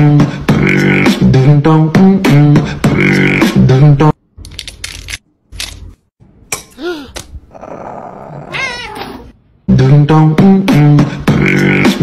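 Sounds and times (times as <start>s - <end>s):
vocal music with beatbox rhythm: 0.0s - 4.0s, 10.3s - 12.0s.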